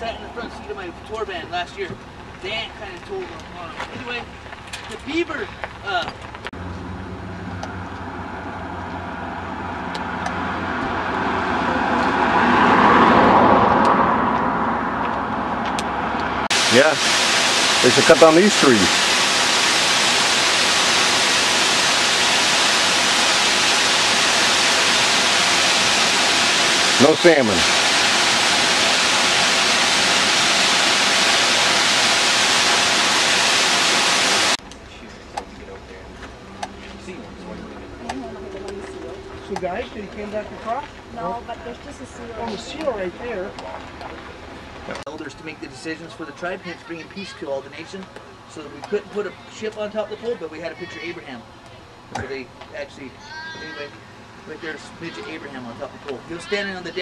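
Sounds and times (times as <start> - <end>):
car passing on road: 6.5 - 45.0
waterfall rushing over rocks: 16.5 - 34.6.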